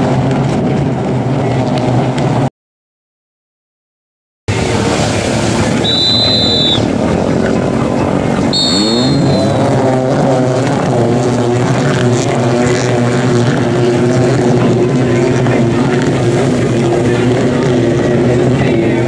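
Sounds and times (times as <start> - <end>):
jet ski engines revving: 0.0 - 2.5, 4.5 - 19.0
signal horn blasts: 5.8 - 6.8, 8.5 - 9.8.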